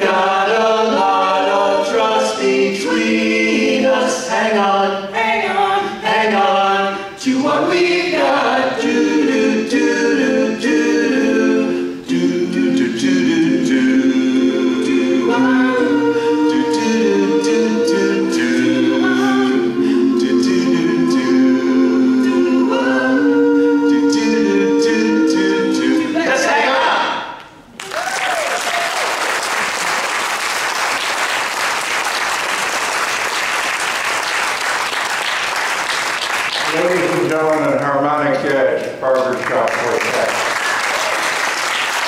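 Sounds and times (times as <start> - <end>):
male quartet singing a cappella: 0.0 - 27.2.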